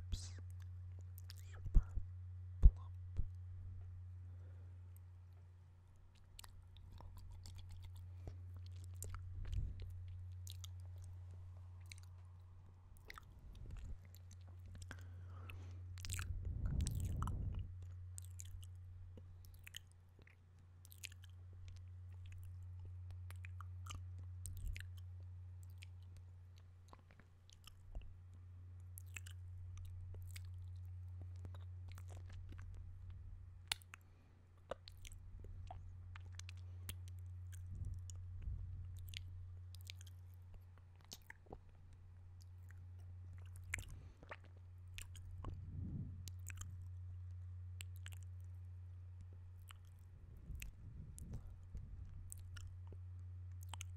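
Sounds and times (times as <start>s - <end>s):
low steady hum: 0.0s - 53.9s
wet lip and tongue clicks: 0.2s - 1.9s, 6.1s - 11.2s, 11.8s - 28.1s, 28.9s - 32.9s, 33.6s - 34.0s, 34.6s - 38.2s, 38.9s - 41.8s, 42.4s - 45.6s, 46.2s - 46.9s, 47.8s - 48.6s, 49.6s - 53.9s.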